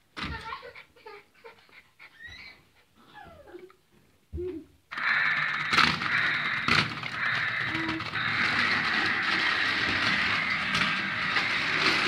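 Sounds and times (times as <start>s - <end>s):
toy car whirring: 4.9s - 12.0s.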